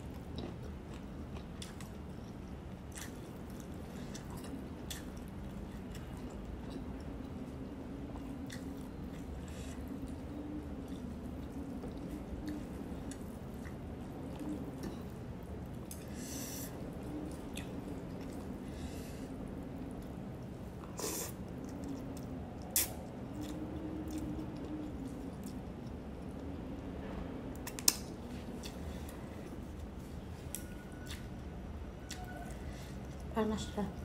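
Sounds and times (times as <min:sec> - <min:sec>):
chewing noodles: 0:00.0 - 0:26.6, 0:27.7 - 0:34.0
faint low hum: 0:00.0 - 0:34.0.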